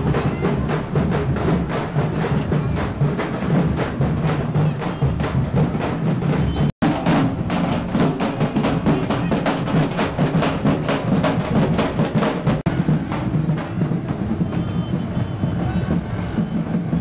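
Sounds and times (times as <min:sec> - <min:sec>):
drums beating fast rhythm: 0:00.0 - 0:17.0.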